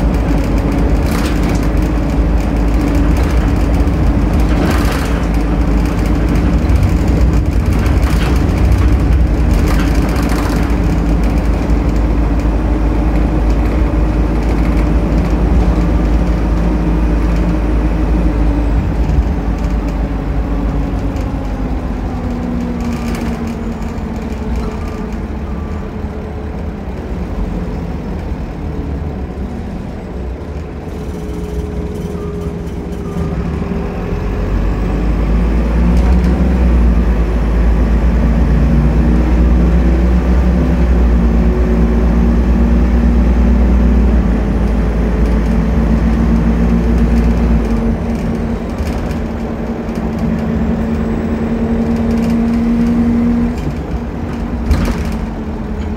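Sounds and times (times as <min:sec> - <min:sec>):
knocks and rattles: 0:00.0 - 0:25.5, 0:43.7 - 0:55.9
bus engine drone: 0:00.0 - 0:55.9
road noise: 0:00.0 - 0:55.9.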